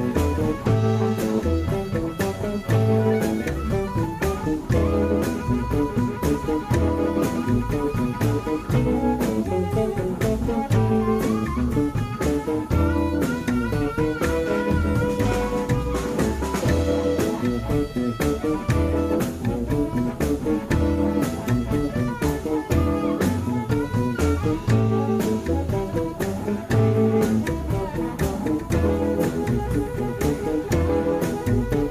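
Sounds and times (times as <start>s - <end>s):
harmonica: 0.0s - 31.9s
live blues band playing: 0.0s - 31.9s.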